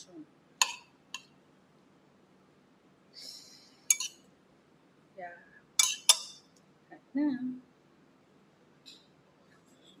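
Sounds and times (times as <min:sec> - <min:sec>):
fork clinking on ceramic bowl: 0:00.6 - 0:01.3, 0:03.9 - 0:04.2, 0:05.8 - 0:06.5
fork scraping bowl: 0:05.8 - 0:06.4.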